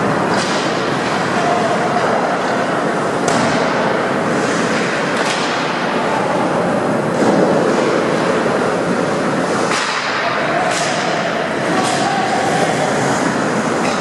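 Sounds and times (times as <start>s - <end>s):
skates rushing on ice: 0.0s - 14.0s
hockey stick cracking puck: 0.3s - 1.2s, 4.7s - 5.8s, 9.6s - 12.1s.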